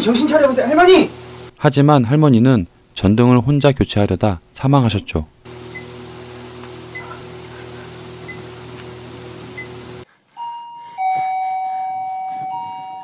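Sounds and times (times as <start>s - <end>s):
electronic doorbell chime: 10.4s - 13.0s.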